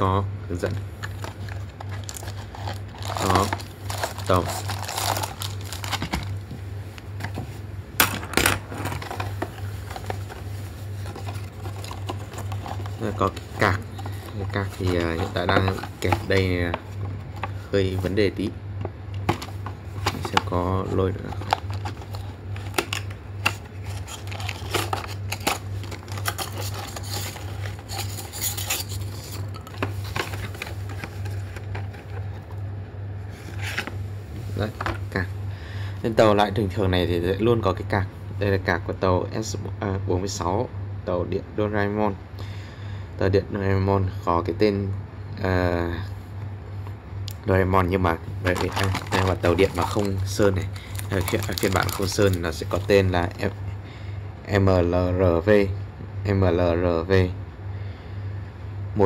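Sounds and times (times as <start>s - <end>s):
steady low hum: 0.0s - 59.0s
cardboard clicks and rustles: 1.0s - 18.2s, 18.9s - 32.6s, 48.4s - 53.5s.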